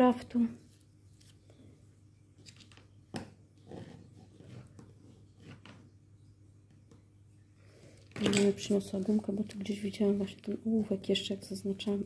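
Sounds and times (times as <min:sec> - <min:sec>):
paper rustling: 0:00.7 - 0:01.6.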